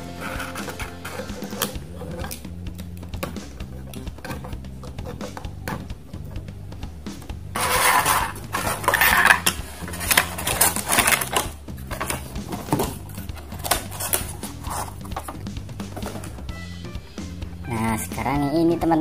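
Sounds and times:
scattered clicks and knocks: 7.1s - 16.4s
packaging rustling and clattering: 7.6s - 16.4s.

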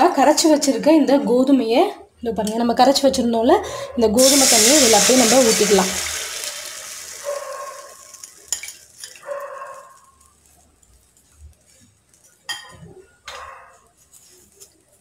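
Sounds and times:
batter pouring into a pan: 4.2s - 9.2s
kitchenware clinking: 12.4s - 12.9s.

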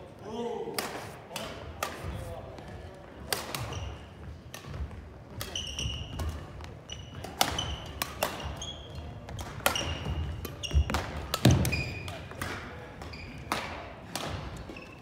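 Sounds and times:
rackets striking shuttlecock: 4.5s - 12.7s, 13.4s - 14.8s
shoes squeaking on wooden floor: 5.5s - 12.2s, 13.0s - 13.5s, 14.6s - 15.0s.

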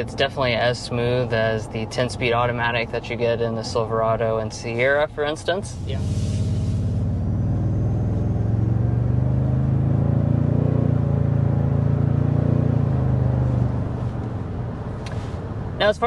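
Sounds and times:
car engine accelerating: 5.7s - 16.0s.

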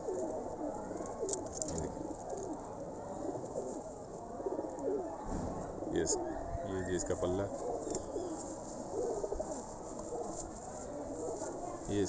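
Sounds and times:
pigeons cooing: 0.0s - 12.0s.

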